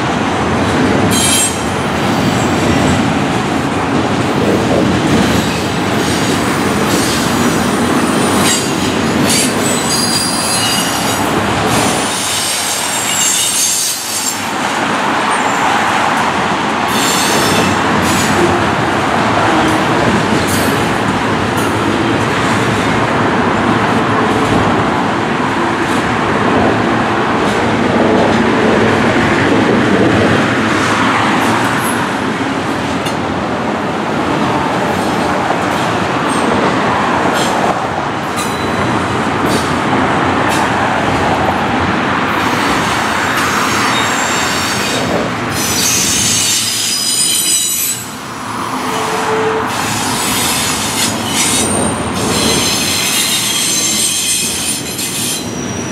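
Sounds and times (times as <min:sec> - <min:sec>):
train wheels rumbling over rails: 0:00.0 - 0:55.9
high wheel squeal: 0:07.0 - 0:14.5, 0:16.9 - 0:18.5, 0:43.5 - 0:48.2, 0:48.8 - 0:55.9.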